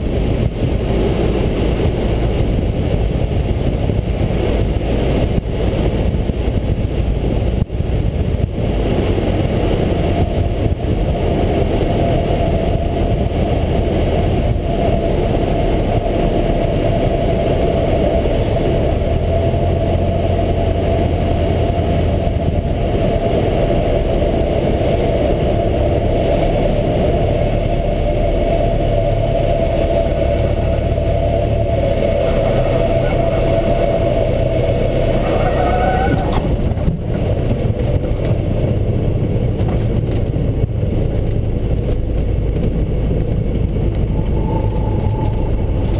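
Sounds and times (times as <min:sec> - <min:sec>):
propeller airplane engine: 0:00.0 - 0:45.9
rushing air noise: 0:00.0 - 0:45.9
thin steady whine: 0:10.1 - 0:39.2, 0:42.4 - 0:45.9.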